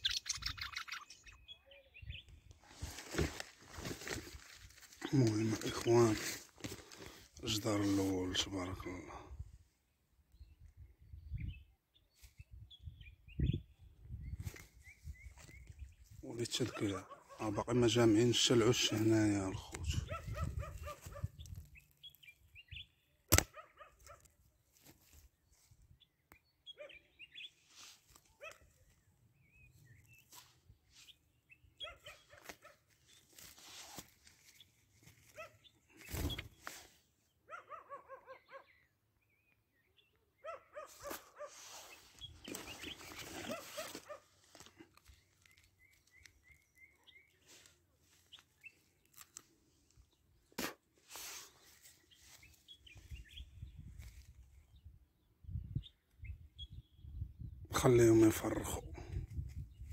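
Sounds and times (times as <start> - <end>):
thin bird chirps: 0.0 - 2.5, 45.0 - 49.6.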